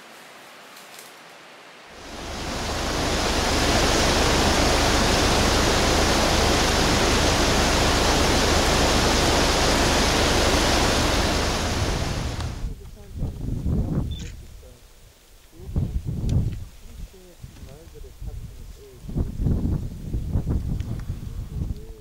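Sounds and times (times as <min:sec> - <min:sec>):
river water rushing: 0:01.8 - 0:12.7.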